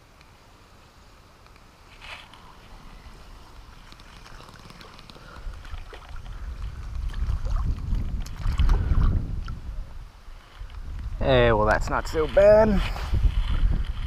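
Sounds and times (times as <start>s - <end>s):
wind rumble on microphone: 5.0s - 14.0s.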